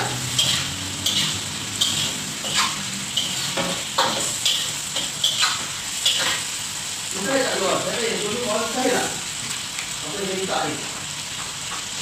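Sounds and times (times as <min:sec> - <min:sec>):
metal spatula scraping pan: 0:00.0 - 0:06.5
food sizzling in oil: 0:00.0 - 0:12.0.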